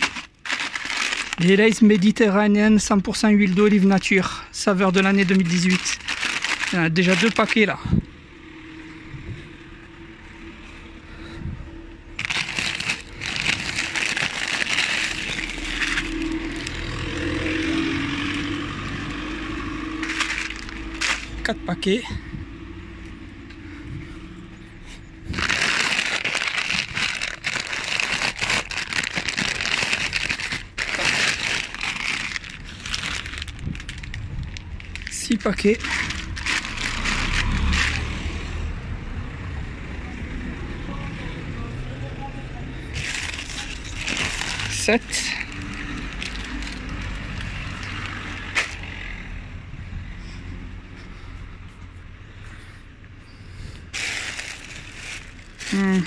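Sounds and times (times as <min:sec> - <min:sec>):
plastic bags crinkling: 0:00.0 - 0:07.8, 0:12.2 - 0:18.3, 0:19.7 - 0:21.9, 0:25.2 - 0:38.2, 0:42.9 - 0:49.1, 0:53.9 - 0:56.0
low steady rumble: 0:04.4 - 0:38.1.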